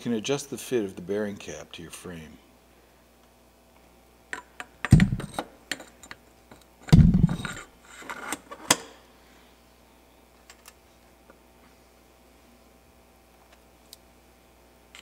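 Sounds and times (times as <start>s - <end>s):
dull thumps: 4.9s - 5.4s, 6.9s - 7.6s.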